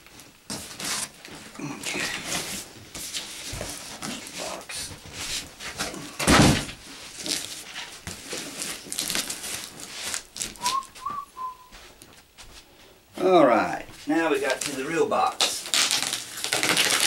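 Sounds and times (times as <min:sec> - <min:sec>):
cardboard boxes rustling and scraping: 0:00.5 - 0:10.7.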